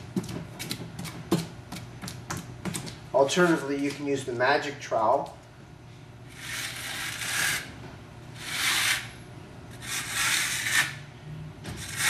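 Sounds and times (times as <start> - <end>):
trowel scraping wet plaster: 6.4 - 7.7, 8.4 - 9.1, 9.8 - 11.0, 11.8 - 12.0.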